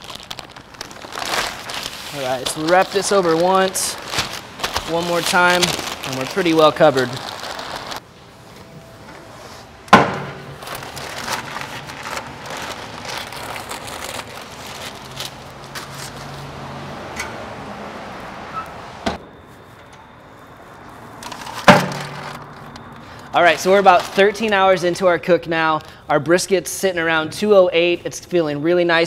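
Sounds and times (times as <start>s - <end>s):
paper crinkling and rustling: 0.0s - 8.0s, 10.4s - 16.6s, 20.4s - 25.0s.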